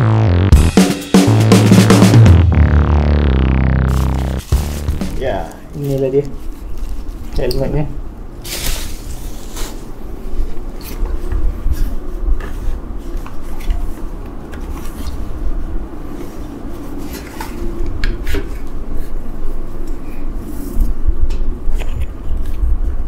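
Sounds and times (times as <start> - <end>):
fabric rustling: 3.9 - 7.4.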